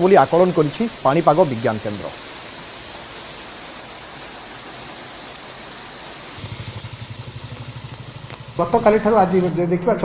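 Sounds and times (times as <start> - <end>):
heavy rain hissing: 0.0 - 9.6
low pulsing rumble: 6.4 - 9.5.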